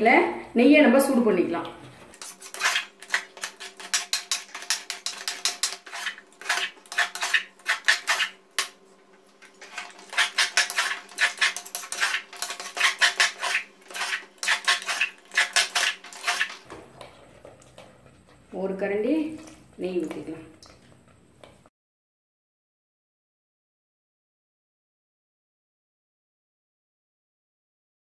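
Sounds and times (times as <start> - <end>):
metal ladle scraping metal pan: 2.1 - 8.7, 9.4 - 16.7.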